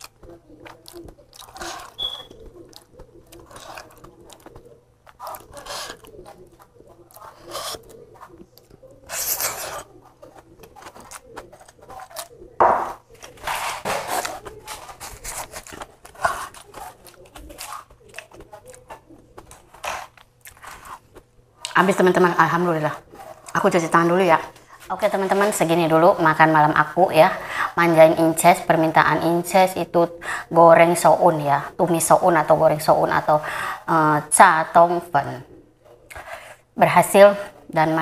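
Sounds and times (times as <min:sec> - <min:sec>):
chewing and lip smacking: 0:00.0 - 0:12.6, 0:14.2 - 0:21.8
noisy mouth or handling sounds: 0:00.0 - 0:21.9
fingers picking food off plate: 0:00.0 - 0:22.0.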